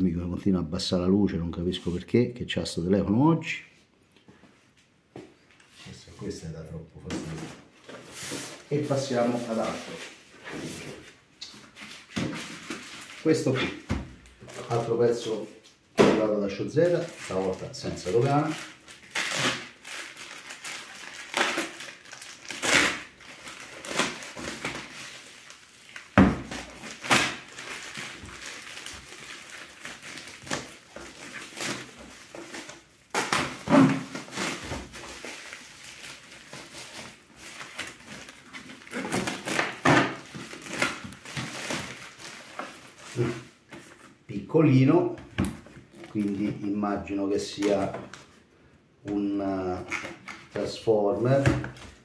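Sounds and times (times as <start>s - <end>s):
plastic mailer bag tearing: 16.8s - 43.4s.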